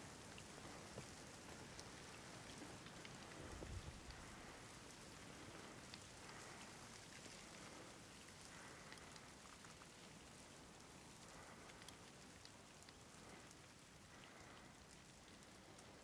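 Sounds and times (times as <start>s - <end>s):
faint steady hiss: 0.0s - 16.0s
faint ticks: 0.2s - 16.0s.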